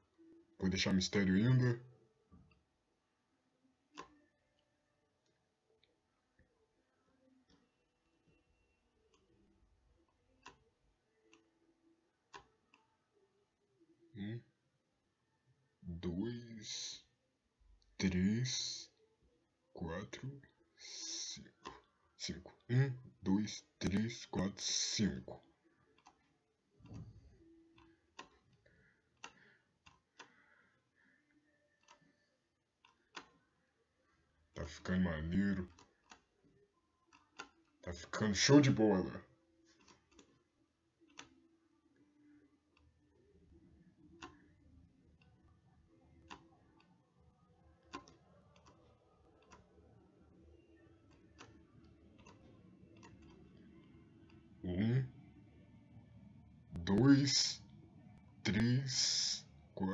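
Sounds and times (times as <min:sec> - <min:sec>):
low steady hum: 0:40.4 - 0:59.9.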